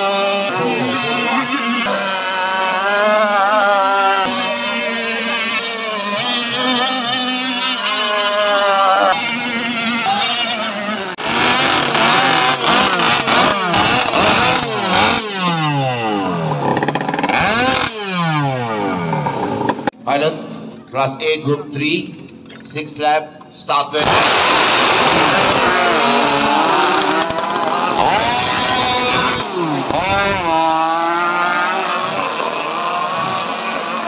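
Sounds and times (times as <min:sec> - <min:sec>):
model boat engines revving: 0:00.0 - 0:20.0, 0:24.0 - 0:34.0.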